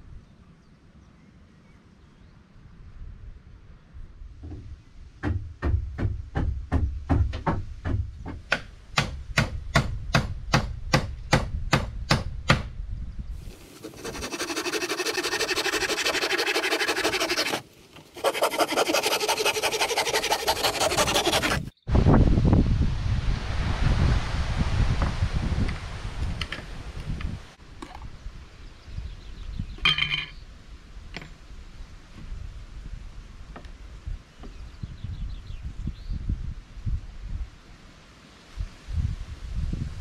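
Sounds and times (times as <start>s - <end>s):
saw rasping through wood: 13.6s - 21.7s
low rushing noise: 21.9s - 27.0s.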